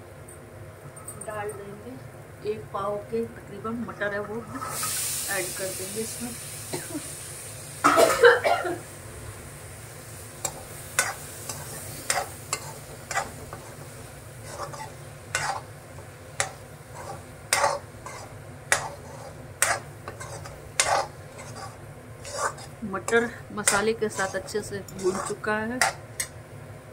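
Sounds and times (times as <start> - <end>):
masala frying: 2.0 - 26.9
utensil scraping a pan: 10.4 - 26.3.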